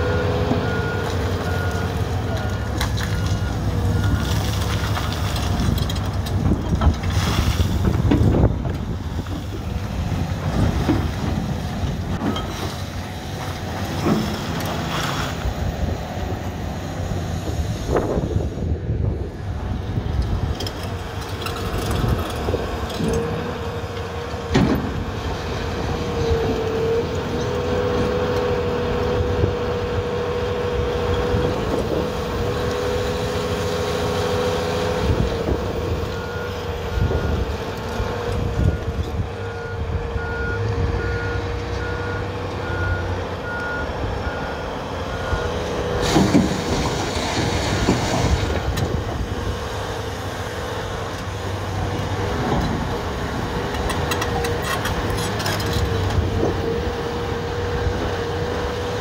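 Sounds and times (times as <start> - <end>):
truck reversing alarm beeps: 0.0 - 4.8, 35.9 - 46.0
excavator diesel engine: 0.0 - 59.0.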